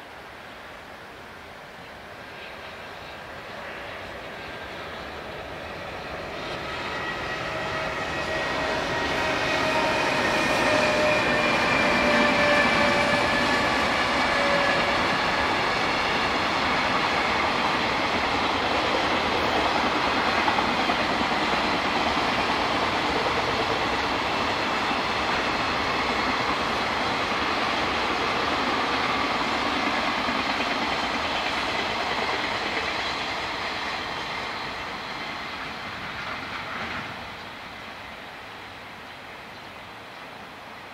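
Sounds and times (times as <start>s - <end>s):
electric locomotive whine: 0.0s - 40.9s
train wagons rumbling and clattering: 5.4s - 37.8s.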